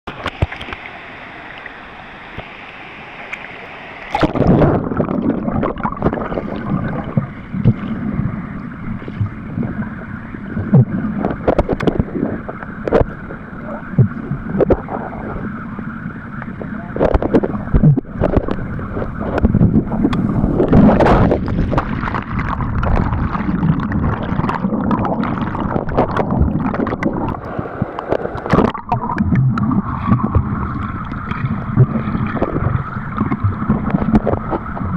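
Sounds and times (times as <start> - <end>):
sharp underwater clicks and knocks: 0.1 - 0.9, 10.6 - 13.2, 16.4 - 30.5, 31.1 - 34.9
underwater gurgling and bubbling: 0.1 - 34.9.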